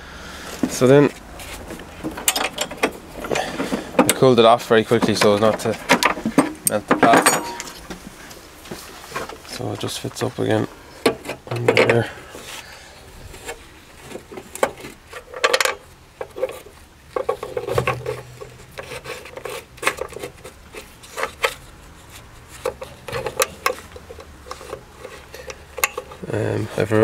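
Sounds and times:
metal clicks knocks and rubbing: 0:01.5 - 0:09.4, 0:11.0 - 0:12.0, 0:13.4 - 0:26.3.

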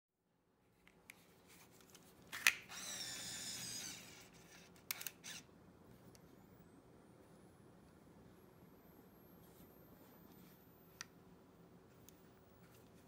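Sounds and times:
camera lens motor whirring: 0:02.6 - 0:05.5.

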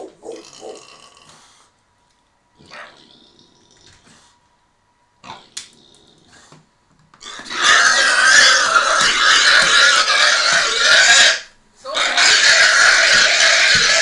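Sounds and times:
pig squealing: 0:00.0 - 0:01.1, 0:02.6 - 0:03.4, 0:07.2 - 0:14.0.

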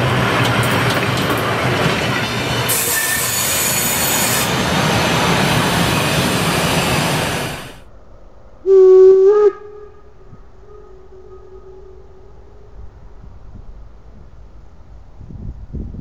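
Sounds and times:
train wheels squealing on rails: 0:00.0 - 0:07.8
steam locomotive whistle: 0:02.6 - 0:07.8, 0:08.6 - 0:12.7.

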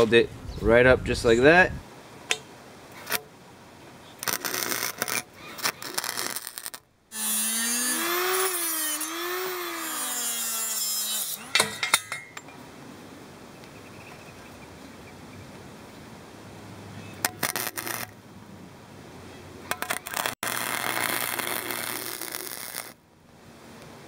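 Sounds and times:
welding arc crackling: 0:04.2 - 0:07.4, 0:17.2 - 0:18.1, 0:19.7 - 0:23.0
angle grinder cutting steel: 0:04.2 - 0:12.3, 0:17.2 - 0:18.1, 0:19.7 - 0:23.0.

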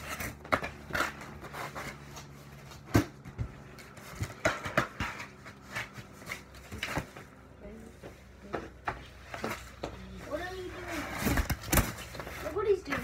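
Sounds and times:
cardboard box being packed: 0:09.2 - 0:13.0.

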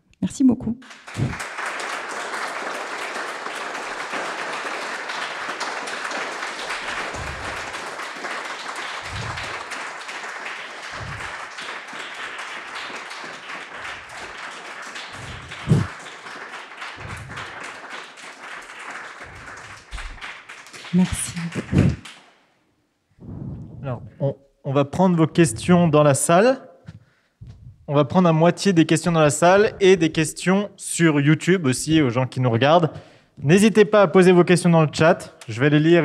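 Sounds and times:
audience applauding: 0:00.8 - 0:22.4
soft low thumps: 0:07.2 - 0:07.6, 0:09.1 - 0:09.5, 0:11.0 - 0:11.3, 0:15.2 - 0:15.9, 0:17.0 - 0:17.3, 0:23.2 - 0:24.2, 0:26.9 - 0:27.9.

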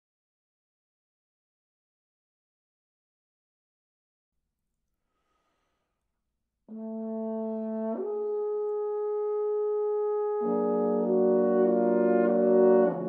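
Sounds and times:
french horns holding notes: 0:06.7 - 0:13.0.

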